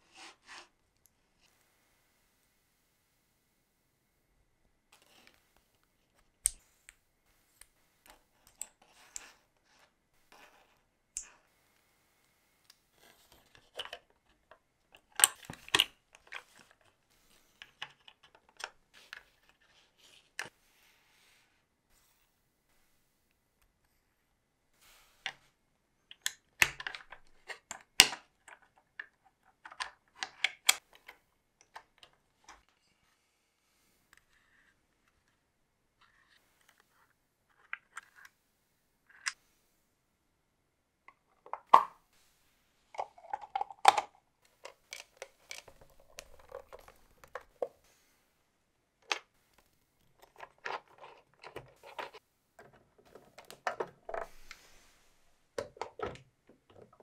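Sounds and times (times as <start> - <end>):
small plastic parts clicking: 43.0 - 47.7.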